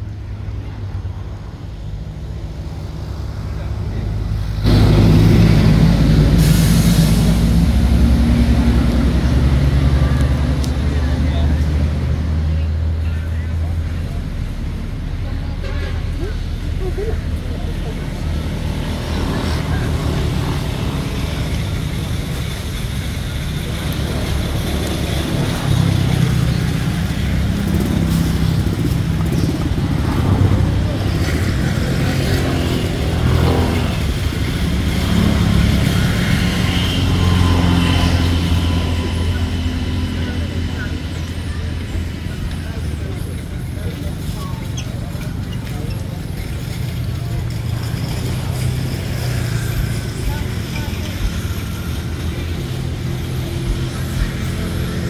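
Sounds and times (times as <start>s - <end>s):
vehicle engine running: 0.0s - 55.0s
hiss: 5.4s - 8.2s.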